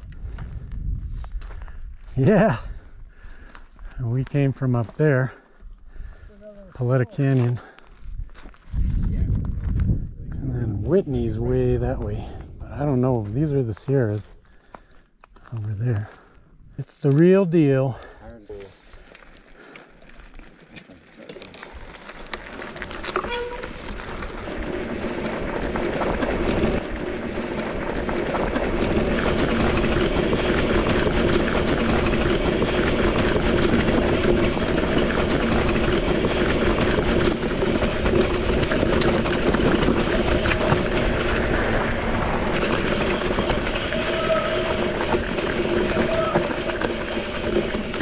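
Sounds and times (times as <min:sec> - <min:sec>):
wind noise on microphone: 0:00.0 - 0:03.4, 0:08.0 - 0:12.9
bike rattling: 0:17.8 - 0:48.0
bike tyres crunching on rocks: 0:18.6 - 0:48.0.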